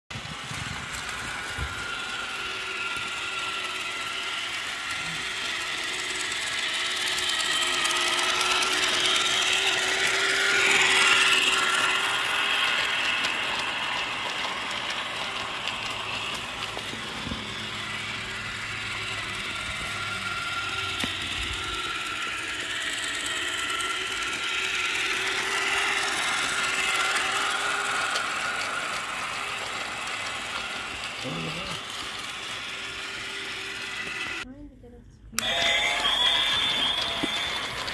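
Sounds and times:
toy train motor whining: 0:00.1 - 0:34.7, 0:35.4 - 0:37.9.

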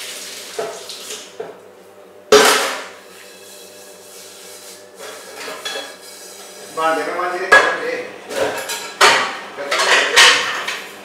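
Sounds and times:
kitchenware clanging: 0:05.0 - 0:06.0, 0:07.5 - 0:10.9.

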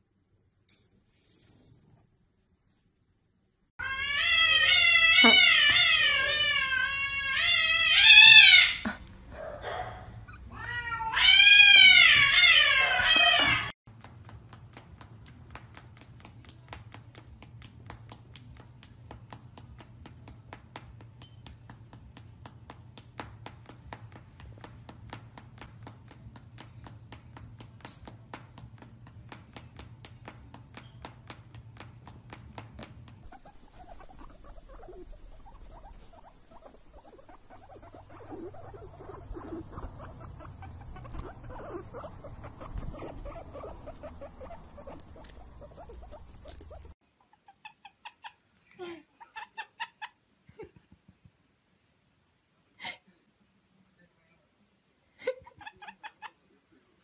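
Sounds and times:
guinea pig squeaking: 0:07.2 - 0:08.8, 0:20.6 - 0:21.8, 0:27.6 - 0:28.8, 0:29.7 - 0:48.4, 0:49.2 - 0:50.2, 0:55.5 - 0:56.4.

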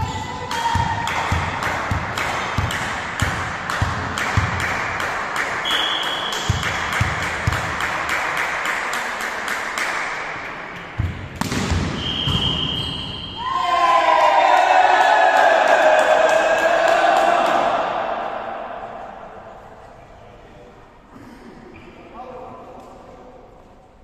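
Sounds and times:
volleyball being hit: 0:00.5 - 0:08.1, 0:11.0 - 0:13.0
high whistle tone: 0:05.6 - 0:06.5, 0:11.9 - 0:13.6.

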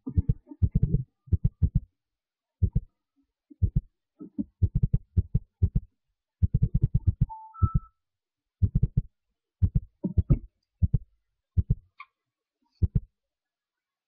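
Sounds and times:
rapid deep thuds: 0:00.0 - 0:01.9, 0:03.6 - 0:07.3, 0:08.6 - 0:11.8.

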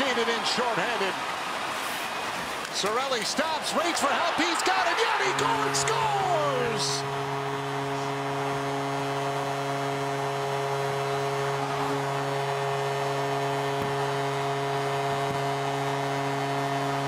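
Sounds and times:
crowd cheering: 0:00.0 - 0:17.0
goal horn long note: 0:04.1 - 0:17.0.

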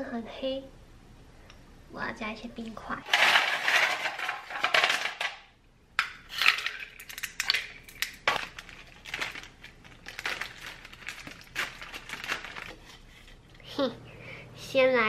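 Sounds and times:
packaging crinkling: 0:03.1 - 0:05.3, 0:06.3 - 0:13.2.

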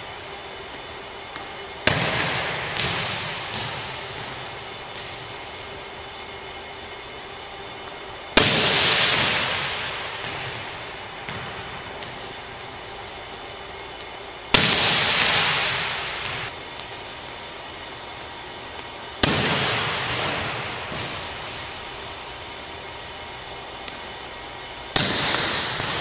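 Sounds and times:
volleyball being struck: 0:01.8 - 0:05.8, 0:08.3 - 0:12.6, 0:14.5 - 0:16.6, 0:18.8 - 0:21.9, 0:24.9 - 0:26.0.

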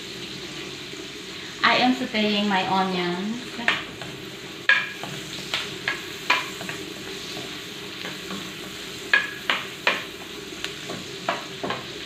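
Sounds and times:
onions sizzling in a frying pan: 0:00.0 - 0:12.0
spoon scraping and clicking on pan: 0:03.7 - 0:11.9.

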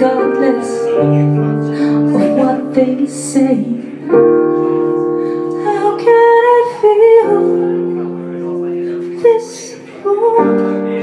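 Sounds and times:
woman singing: 0:00.0 - 0:04.0, 0:05.5 - 0:07.8, 0:09.0 - 0:11.0
piano chords: 0:00.0 - 0:11.0.

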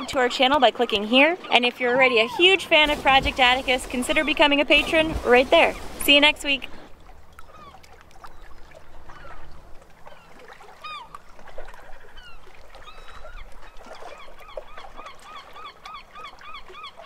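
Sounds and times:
birds chirping: 0:00.0 - 0:11.1.

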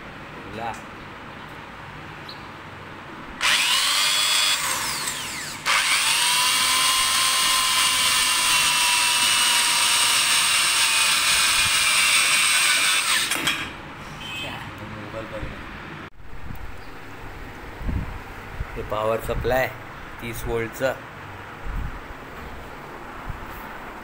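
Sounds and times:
electric drill whining: 0:03.4 - 0:13.7.

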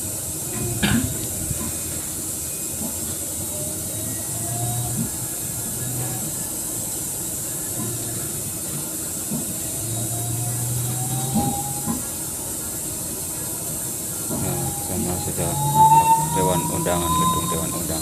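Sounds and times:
road and engine noise: 0:00.0 - 0:18.0.

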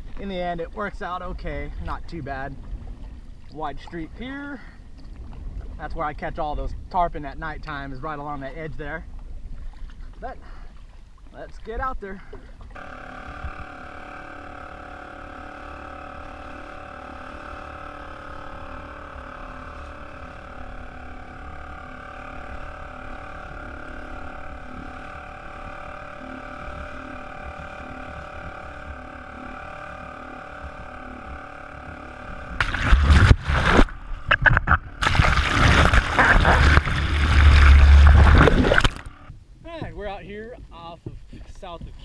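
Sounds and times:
rush of water: 0:32.3 - 0:39.3.

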